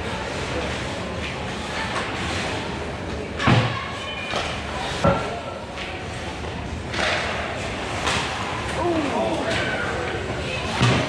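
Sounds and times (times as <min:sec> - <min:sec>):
puck and sticks hitting boards: 0:06.9 - 0:08.5.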